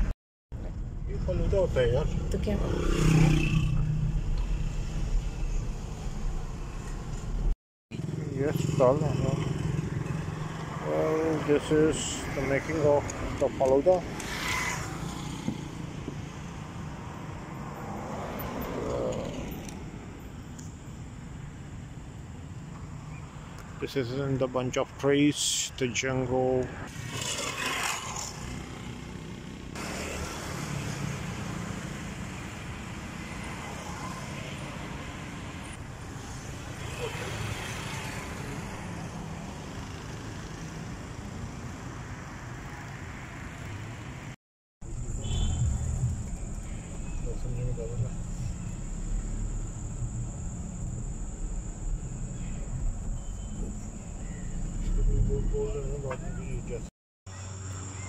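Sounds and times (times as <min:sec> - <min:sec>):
road traffic noise: 0:00.0 - 0:58.0
low rumble of car: 0:44.8 - 0:56.9.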